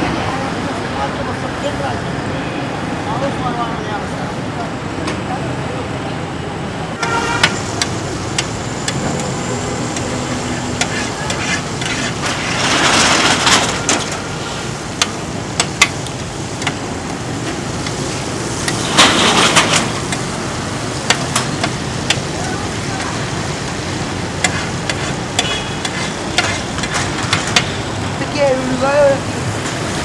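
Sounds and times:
street traffic hum: 0:00.0 - 0:30.0
spatula scraping on iron pan: 0:09.9 - 0:14.4, 0:24.4 - 0:27.7.

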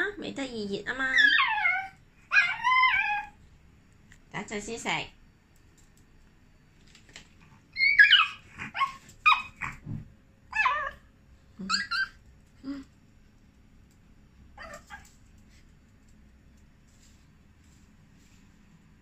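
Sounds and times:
small dog yipping and whining: 0:01.1 - 0:03.4, 0:07.7 - 0:09.8, 0:10.5 - 0:12.2, 0:14.6 - 0:15.1.

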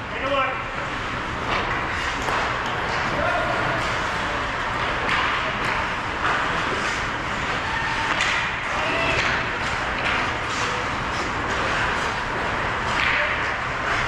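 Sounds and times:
hockey sticks and puck clicking: 0:01.4 - 0:03.1, 0:03.8 - 0:14.0
distant shouts: 0:07.6 - 0:09.4.

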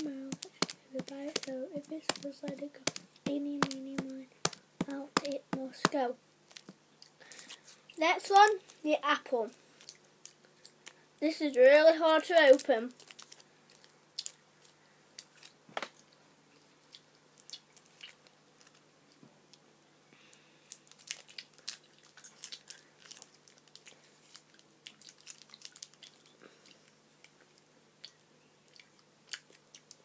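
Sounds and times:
paper wrapper crackling: 0:00.0 - 0:07.6, 0:12.4 - 0:15.5, 0:20.7 - 0:26.3
chewing: 0:13.1 - 0:18.8, 0:21.0 - 0:30.0.

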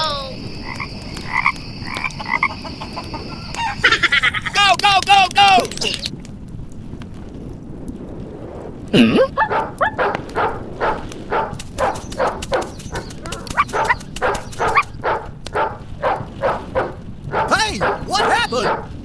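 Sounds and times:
dog barking: 0:09.3 - 0:19.0.

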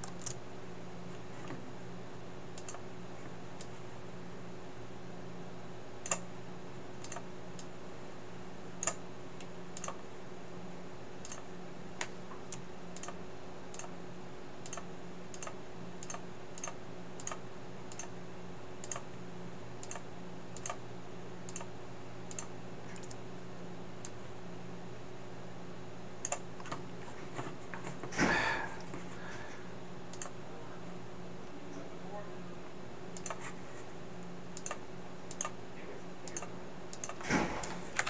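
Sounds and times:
mouse and keyboard clicks: 0:00.0 - 0:00.4, 0:07.0 - 0:07.7, 0:33.2 - 0:33.6, 0:34.6 - 0:35.6
low steady hum: 0:00.0 - 0:38.0.

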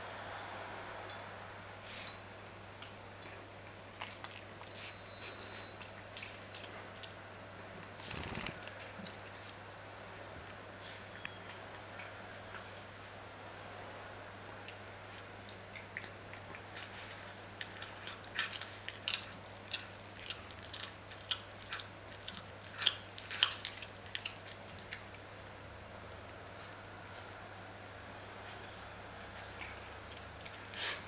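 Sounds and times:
cat chewing and crunching: 0:03.1 - 0:25.6, 0:26.5 - 0:31.0.

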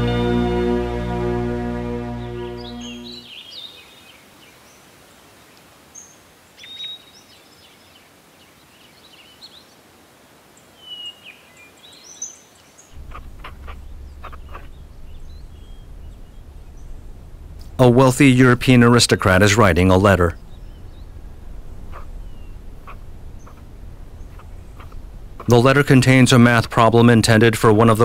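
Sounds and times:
music: 0:00.0 - 0:03.2, 0:13.1 - 0:14.7
low steady hum: 0:00.0 - 0:03.3, 0:12.9 - 0:28.0
faint hiss: 0:00.0 - 0:28.0
small birds chirping: 0:02.1 - 0:09.8, 0:10.6 - 0:28.0.

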